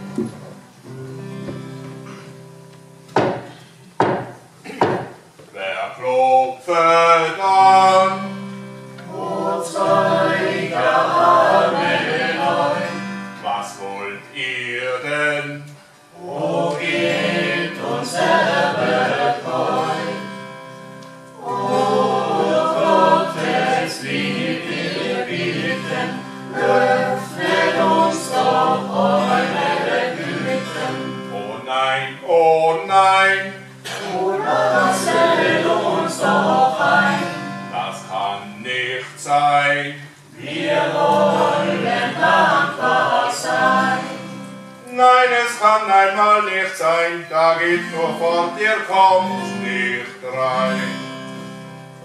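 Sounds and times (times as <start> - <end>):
acoustic guitars: 0.0 - 52.0
group of voices singing: 9.0 - 20.4, 21.4 - 50.9.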